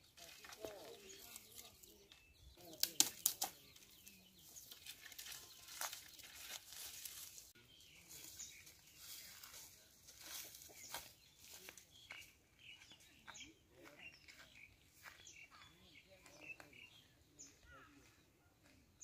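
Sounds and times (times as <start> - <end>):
dry branches crackling and rustling: 0.0 - 12.2.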